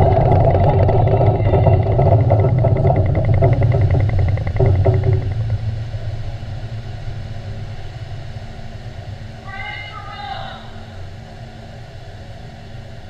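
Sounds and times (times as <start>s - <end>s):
faint rapid ticking: 0.0s - 8.6s
deep underwater explosion rumble: 0.0s - 9.4s.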